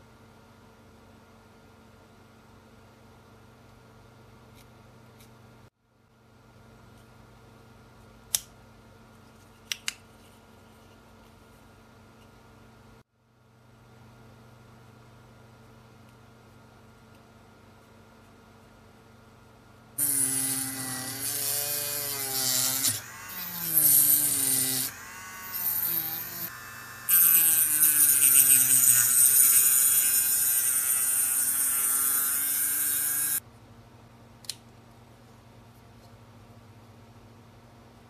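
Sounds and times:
hiss of cutting plastic: 0:20.0 - 0:33.4
rotary tool motor whine: 0:20.0 - 0:33.4.

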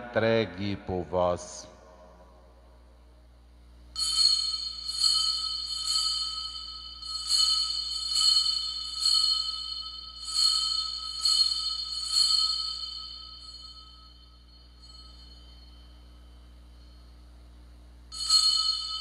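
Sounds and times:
altar bells ringing: 0:04.0 - 0:17.3, 0:18.1 - 0:19.0.

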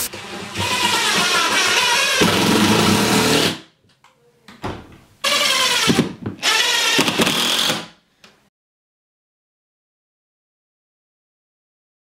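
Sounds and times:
impact driver driving screws: 0:05.3 - 0:07.9.

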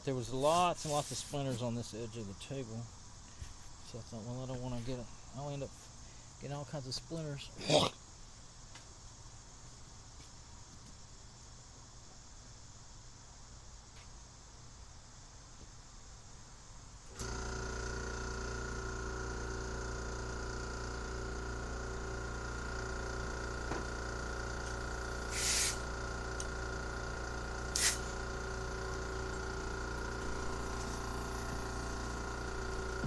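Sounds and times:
compressed air blowgun hiss: 0:00.3 - 0:01.6, 0:24.6 - 0:32.7
air compressor drone: 0:17.1 - 0:33.0.

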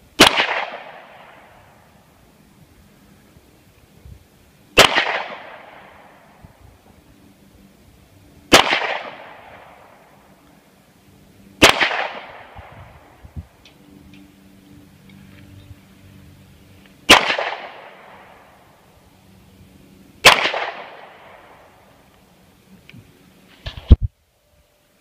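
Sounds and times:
pistol shots with echo: 0:00.2 - 0:01.5, 0:04.8 - 0:06.1, 0:08.5 - 0:10.0, 0:11.6 - 0:12.7, 0:17.1 - 0:18.4, 0:20.2 - 0:21.6.

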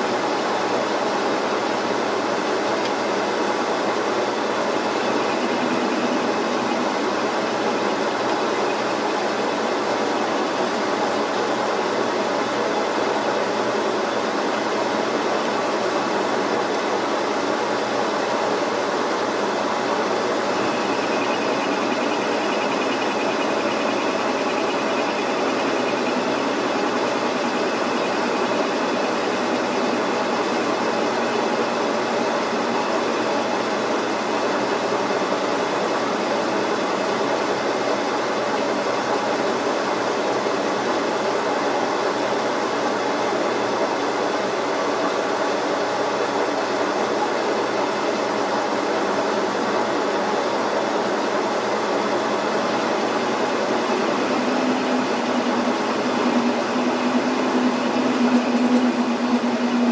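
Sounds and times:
metal lathe humming: 0:02.9 - 0:11.2, 0:19.0 - 0:34.7, 0:52.1 - 0:59.9.

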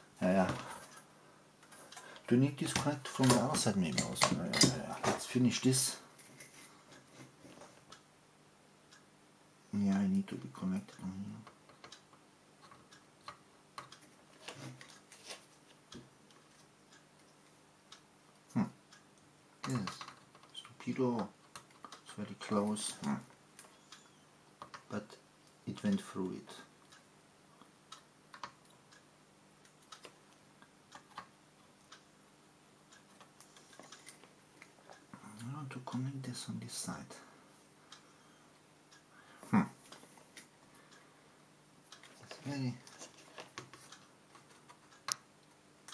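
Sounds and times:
faint clicks and taps: 0:00.3 - 0:05.3, 0:10.3 - 0:26.1, 0:27.6 - 0:29.0, 0:29.6 - 0:32.1, 0:32.9 - 0:36.3, 0:41.9 - 0:45.9.

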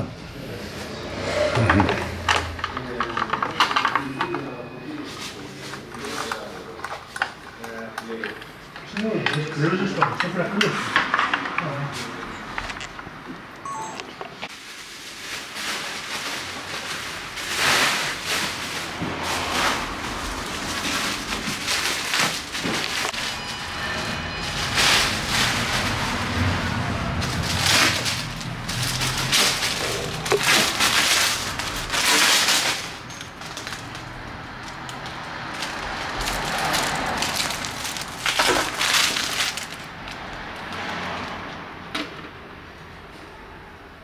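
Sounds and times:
plastic bag crinkling: 0:14.5 - 0:23.4, 0:27.2 - 0:40.4.

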